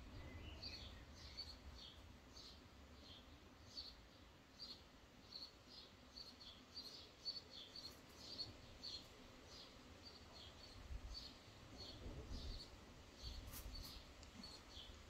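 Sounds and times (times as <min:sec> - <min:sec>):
faint high bird chirps: 0:00.1 - 0:03.2, 0:06.2 - 0:15.0.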